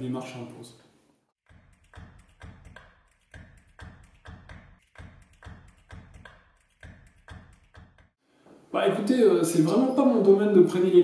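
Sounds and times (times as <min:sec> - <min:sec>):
soft percussive taps: 0:01.8 - 0:08.6.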